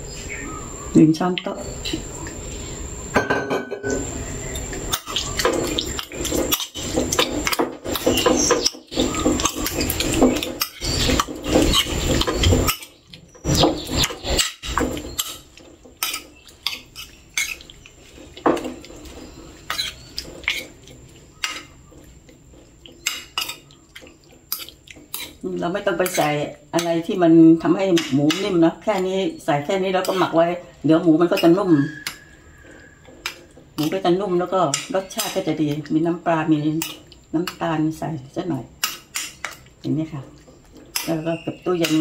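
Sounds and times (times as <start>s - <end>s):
metal spoon clinking on a plate: 3.2s - 4.0s.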